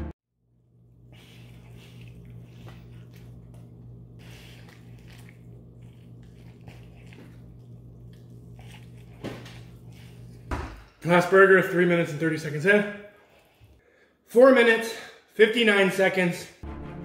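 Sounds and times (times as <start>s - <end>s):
steady low hum: 0.0s - 13.8s
man chewing a burger: 0.9s - 10.5s.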